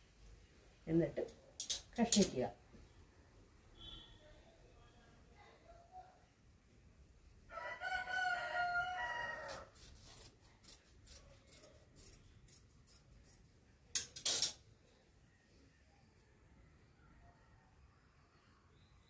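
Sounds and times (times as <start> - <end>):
rooster crowing: 7.5 - 9.8.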